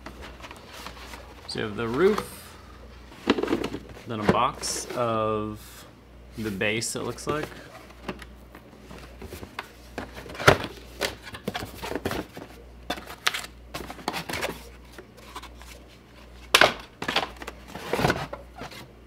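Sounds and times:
cardboard scraping and rubbing: 0.1s - 2.3s, 17.6s - 18.9s.

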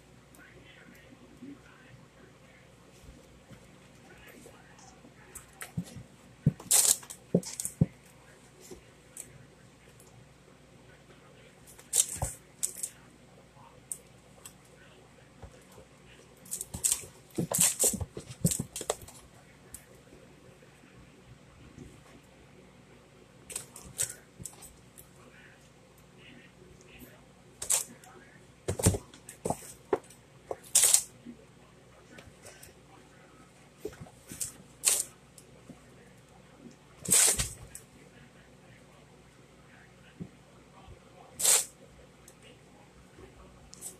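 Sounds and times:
kittens scuffling: 2.8s - 10.1s, 11.6s - 13.0s, 15.2s - 20.8s, 23.4s - 25.2s, 27.6s - 31.1s, 36.7s - 37.9s.

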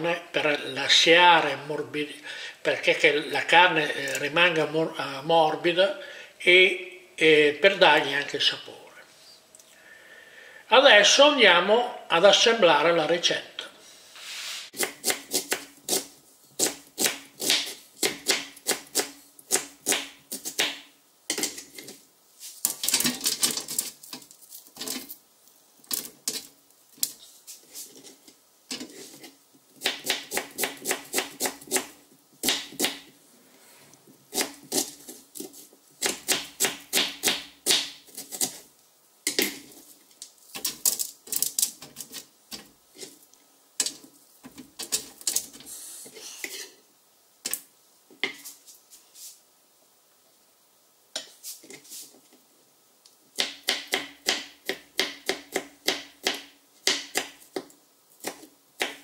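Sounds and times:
faint steady hum: 0.0s - 59.0s
soft rustles: 21.8s - 22.7s, 48.4s - 49.5s, 51.3s - 52.3s.

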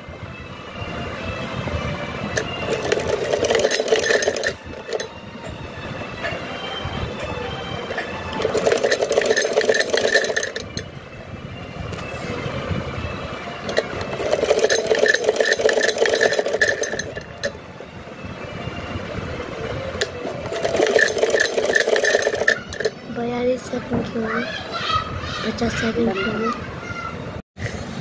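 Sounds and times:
sewing machine stitching: 2.4s - 5.1s, 7.9s - 10.8s, 13.7s - 17.6s, 20.0s - 22.9s.

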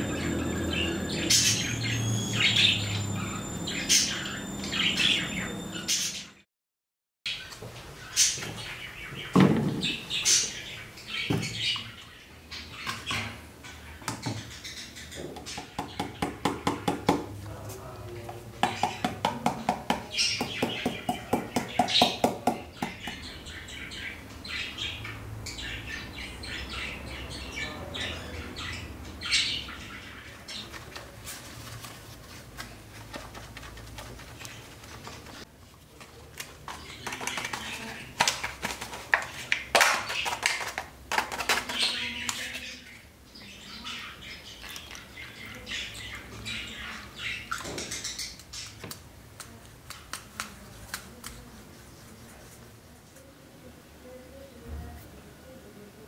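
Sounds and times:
small birds chirping: 0.0s - 6.4s, 7.3s - 17.0s, 17.8s - 31.2s, 41.6s - 48.8s
plastic tubs clicking and clattering: 33.0s - 42.6s.

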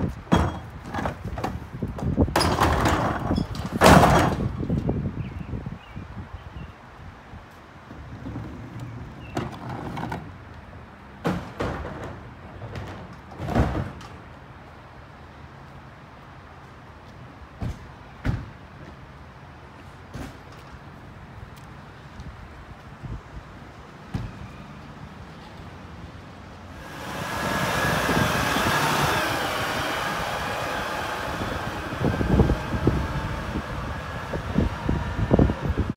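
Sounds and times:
wind buffeting microphone: 0.0s - 9.4s, 26.8s - 35.9s
garbage truck driving past: 26.7s - 35.9s
steady low hum: 26.7s - 35.9s.

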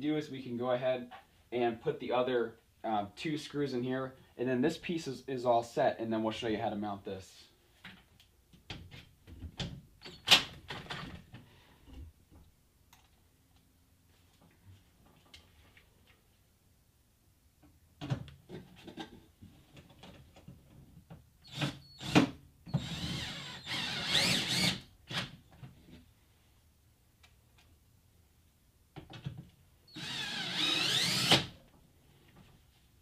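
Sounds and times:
cordless drill driving screws: 21.5s - 25.3s, 29.9s - 31.6s.

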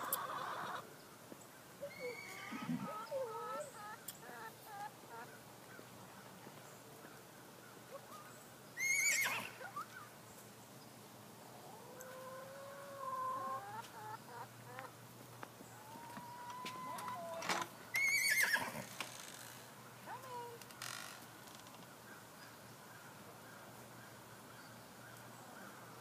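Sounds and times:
horse whinnying: 1.8s - 3.1s, 8.8s - 9.6s, 18.0s - 19.0s.

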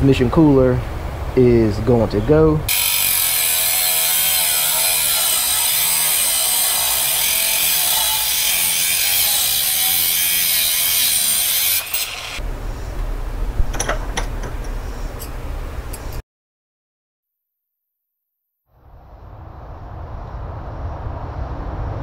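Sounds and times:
angle grinder cutting metal: 2.7s - 12.4s
low hum: 18.7s - 22.0s.

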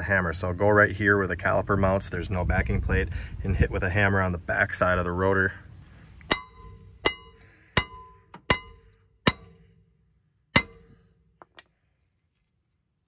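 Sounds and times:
hammer striking ringing brake rotor: 6.3s - 9.9s, 10.5s - 11.2s.

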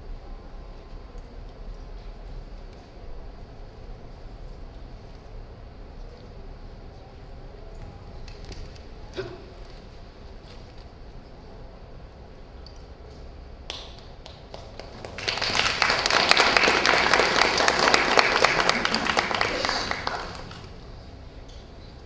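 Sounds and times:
audience applauding: 14.2s - 20.9s.

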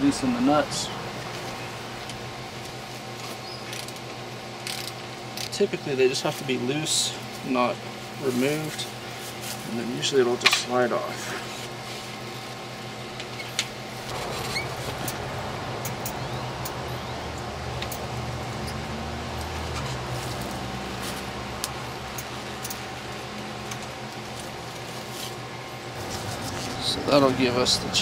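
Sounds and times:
steady low hum: 0.0s - 28.0s
bicycle wheel clicks and rattles: 4.6s - 5.6s.

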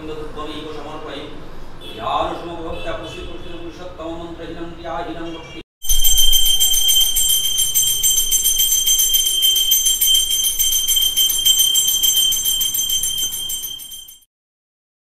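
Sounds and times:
brass hand bell ringing rapidly: 5.8s - 14.3s.

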